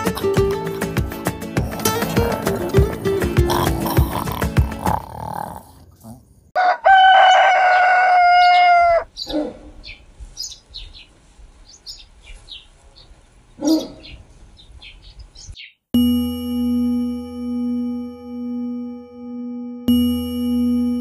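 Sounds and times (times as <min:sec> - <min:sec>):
rooster crowing: 0:06.6 - 0:09.1
small birds chirping: 0:08.4 - 0:15.9.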